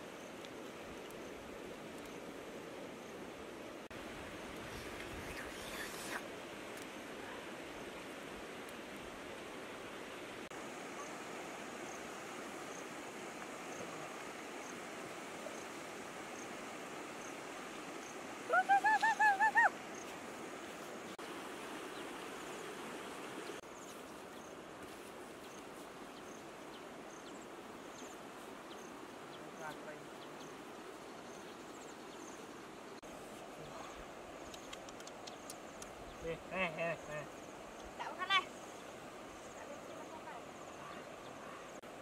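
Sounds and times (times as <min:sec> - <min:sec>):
steady outdoor hiss: 0:00.0 - 0:42.0
sharp high ticks: 0:34.4 - 0:36.0.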